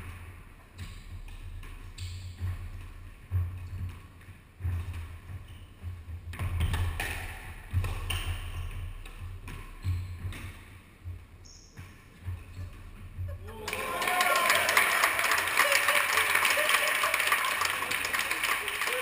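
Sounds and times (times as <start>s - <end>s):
squash ball hitting rackets and walls: 0.0s - 13.3s.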